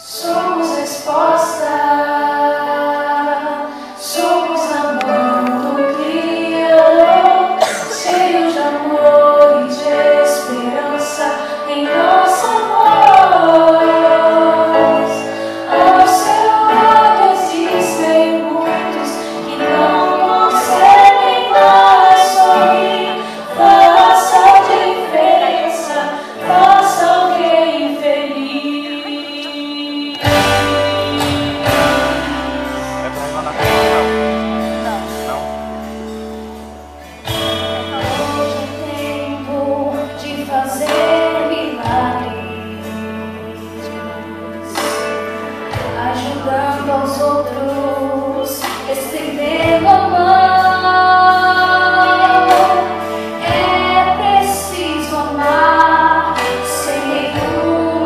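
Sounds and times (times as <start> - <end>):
women's voices leading melody: 0.0 - 32.6, 46.0 - 58.0
group singing into microphones: 0.0 - 35.4, 37.0 - 58.0.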